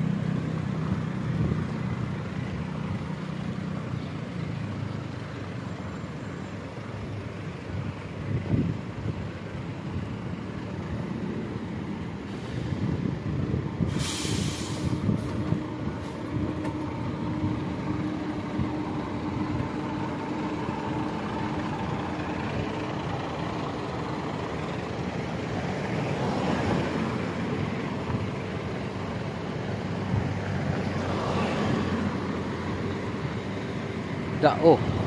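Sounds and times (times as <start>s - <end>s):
slow-moving vehicle engines: 0.0s - 35.0s
brief hiss: 12.3s - 12.8s, 13.9s - 15.4s.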